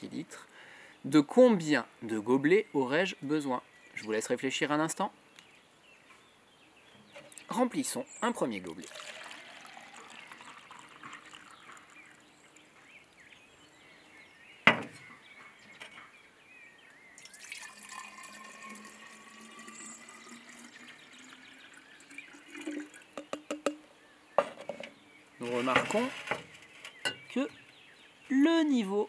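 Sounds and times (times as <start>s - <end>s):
water pouring into cup: 8.7s - 12.2s, 17.2s - 23.6s
water pouring into bottle rising pitch: 8.8s - 12.2s, 17.2s - 23.8s
water splashes and clicks: 10.9s - 11.9s
glass bottle knocking on glass table: 23.2s - 23.8s.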